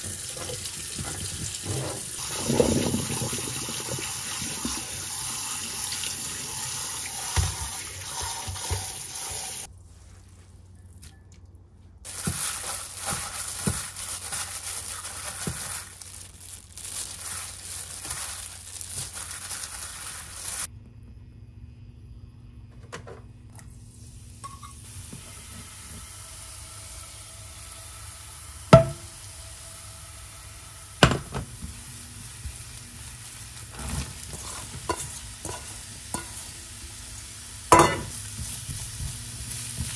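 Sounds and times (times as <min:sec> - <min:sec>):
tap water running: 0:00.0 - 0:09.7, 0:23.5 - 0:39.9.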